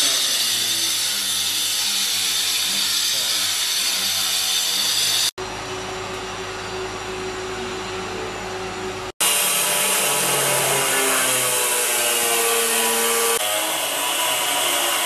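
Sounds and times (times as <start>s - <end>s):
angle grinder grinding stone: 0.0s - 5.3s.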